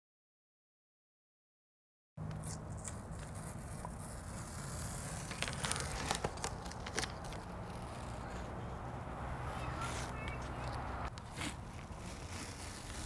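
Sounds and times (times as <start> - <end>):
tape being peeled off: 2.2 - 8.9, 9.8 - 13.0.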